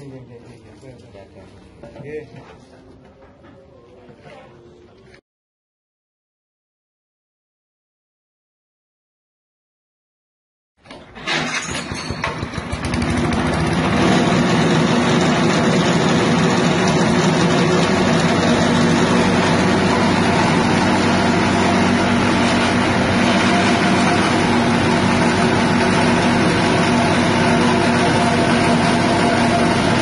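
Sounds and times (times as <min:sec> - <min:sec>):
petrol engine running a grass chopper: 0:11.2 - 0:30.0.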